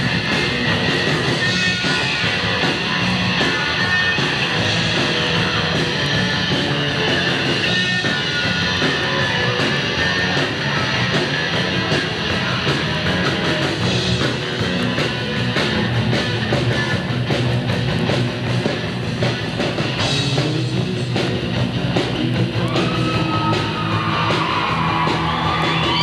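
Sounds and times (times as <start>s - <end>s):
drum and cymbal hits: 0.0s - 26.0s
live rock band playing: 0.0s - 26.0s.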